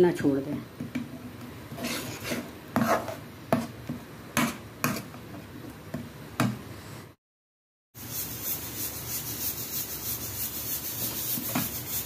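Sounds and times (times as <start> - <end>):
steel spoon scraping a pan: 1.7 - 3.2.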